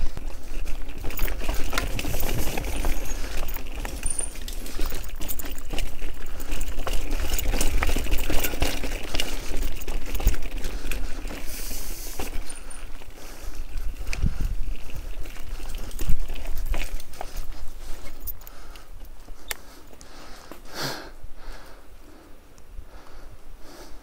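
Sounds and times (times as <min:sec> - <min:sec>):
bicycle rattling over rough trail: 0:00.0 - 0:24.0.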